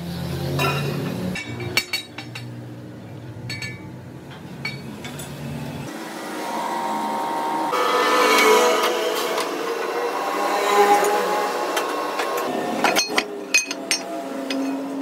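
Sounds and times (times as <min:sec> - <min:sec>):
metal clinks: 0:03.4 - 0:03.9, 0:12.8 - 0:15.0.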